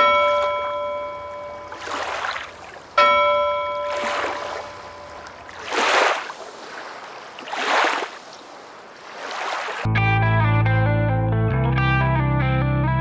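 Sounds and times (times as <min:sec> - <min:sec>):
bell ringing: 0:00.0 - 0:01.9, 0:03.0 - 0:05.5
surf-like wave noise: 0:00.0 - 0:09.9.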